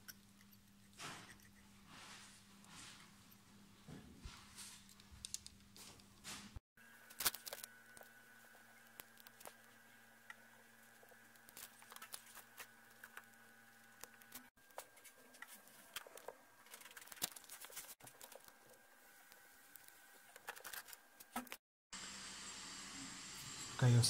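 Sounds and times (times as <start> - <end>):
small parts clicking and tapping: 4.9 - 6.1.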